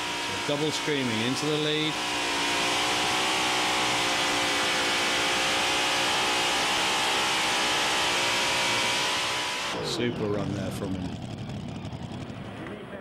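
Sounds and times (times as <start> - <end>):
tractor engines running: 0.0 - 5.7, 9.2 - 13.0.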